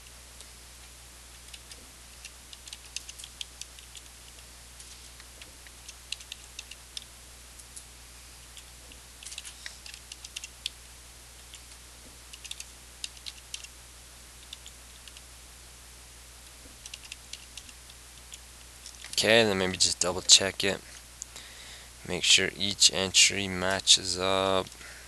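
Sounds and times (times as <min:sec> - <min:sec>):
faint low hum: 0:00.0 - 0:25.0
computer keyboard typing: 0:01.5 - 0:04.1, 0:05.8 - 0:07.1, 0:08.6 - 0:10.8, 0:12.3 - 0:13.7, 0:16.8 - 0:18.4.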